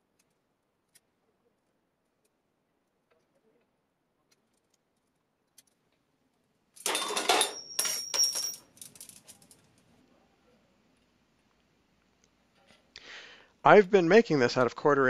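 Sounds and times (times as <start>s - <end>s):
metal coil clattering on cart: 6.8s - 9.7s.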